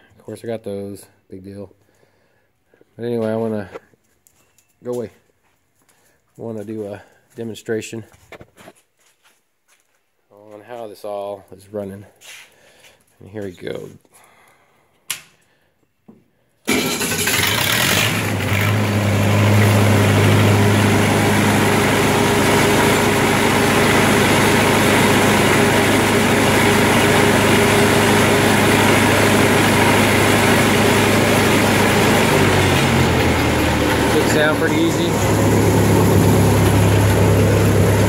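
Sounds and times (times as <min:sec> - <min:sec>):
gasoline engine starting and running: 0:16.7 - 0:38.0.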